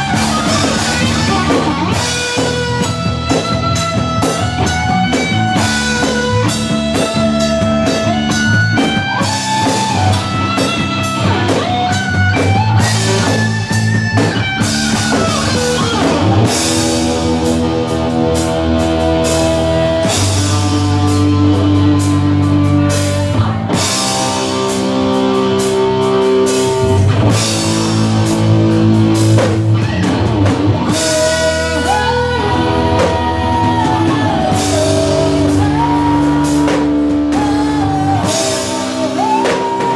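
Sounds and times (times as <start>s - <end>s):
rock band playing: 0.0s - 39.9s
woman singing: 31.1s - 39.9s.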